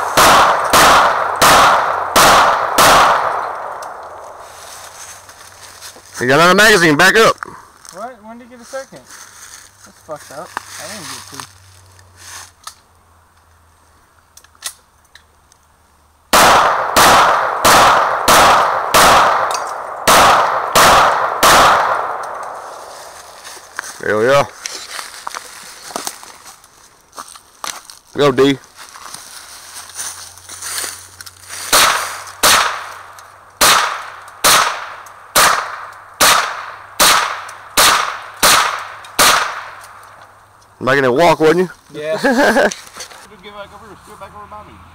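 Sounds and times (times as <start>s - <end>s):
pistol shots echoing: 0.0s - 4.4s, 16.3s - 22.9s, 31.7s - 33.0s, 33.6s - 39.9s.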